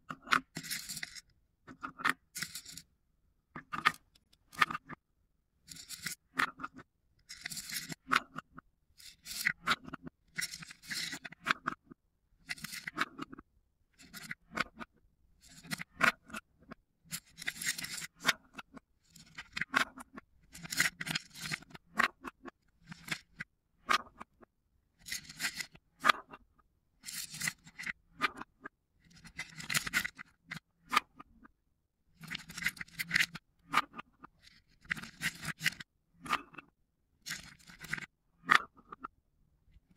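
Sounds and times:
wooden balls clacking and rattling: 0.1 - 2.8, 32.2 - 39.1.

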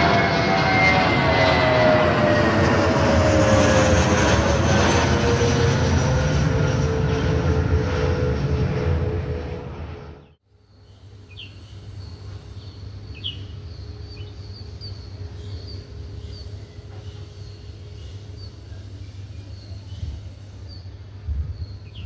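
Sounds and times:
small birds chirping: 10.2 - 22.0.

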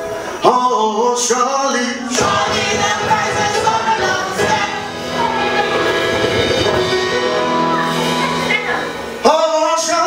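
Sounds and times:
choir singing: 1.6 - 8.6
band with drums: 2.1 - 9.3.

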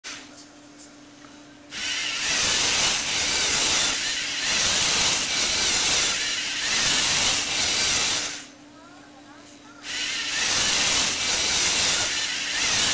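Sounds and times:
servo motors whirring gears: 1.8 - 8.4, 9.9 - 12.9.

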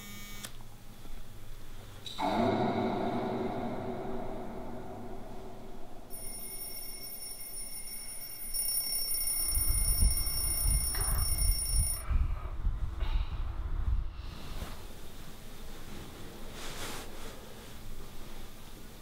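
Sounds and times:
low rumbling noise: 2.1 - 6.4
electronic alarm ringing: 6.1 - 12.0.

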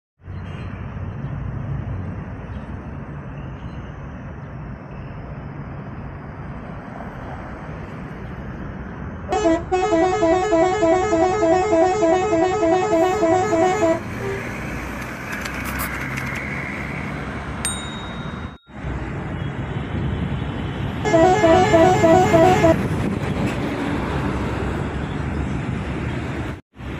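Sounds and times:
vehicle rumble: 0.2 - 26.9
musical air horn tune: 9.3 - 14.5, 21.0 - 22.8.

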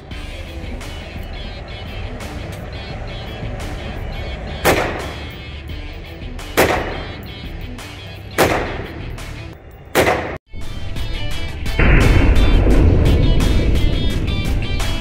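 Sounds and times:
background music: 0.0 - 15.0
rifle shots echoing: 4.7 - 5.4, 6.6 - 7.2, 8.4 - 9.1, 9.9 - 10.4.

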